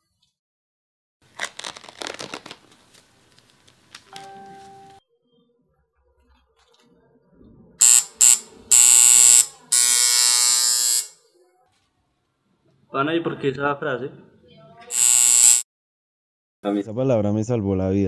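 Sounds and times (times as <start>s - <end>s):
rustling handling sounds: 1.4s - 5.0s
tattoo machine buzzing: 7.8s - 11.2s, 14.9s - 15.7s.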